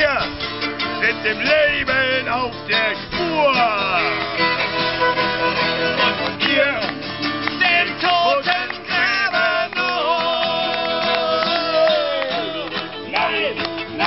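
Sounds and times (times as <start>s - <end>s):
string accompaniment: 0.0s - 14.0s
violin playing sliding phrases: 3.8s - 7.8s.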